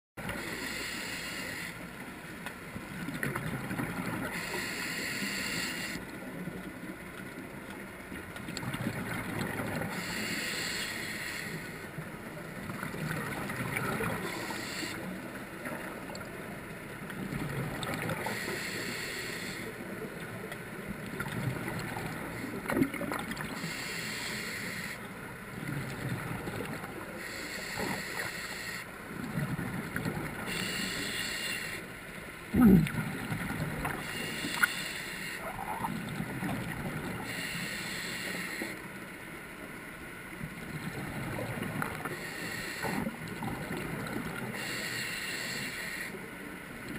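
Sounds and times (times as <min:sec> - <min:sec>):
diver regulator breathing hiss: 0:00.4 - 0:01.8, 0:04.3 - 0:06.0, 0:09.9 - 0:11.9, 0:14.1 - 0:15.1, 0:18.2 - 0:19.8, 0:23.5 - 0:25.1, 0:27.1 - 0:28.9, 0:30.4 - 0:31.9, 0:34.0 - 0:35.5, 0:37.2 - 0:38.9, 0:42.1 - 0:43.2, 0:44.4 - 0:46.3
bubbling of exhaled air: 0:32.5 - 0:37.5.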